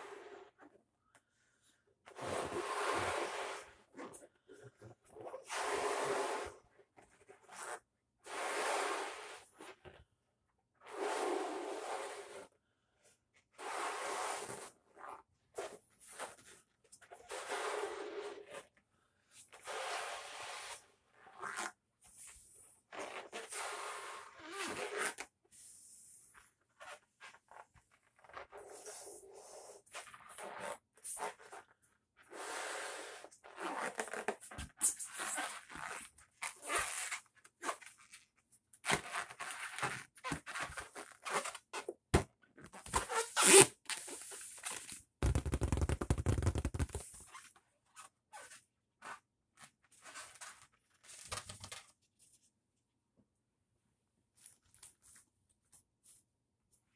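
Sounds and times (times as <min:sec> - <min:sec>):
balloon latex squeaking: 0:33.4 - 0:38.2, 0:38.8 - 0:49.2.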